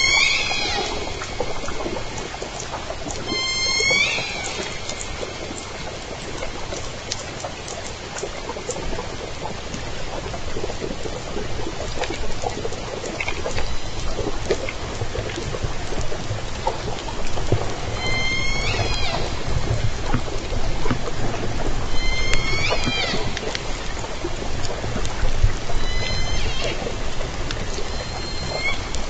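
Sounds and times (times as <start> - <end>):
faint killer whale calls: 0.0 - 7.1, 12.9 - 29.0
underwater crackling hiss: 0.0 - 29.0.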